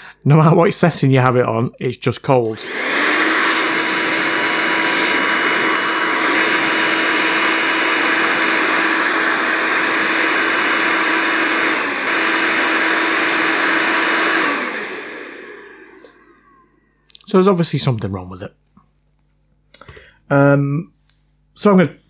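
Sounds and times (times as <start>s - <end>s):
hair dryer whining rush of air: 2.4s - 17.0s.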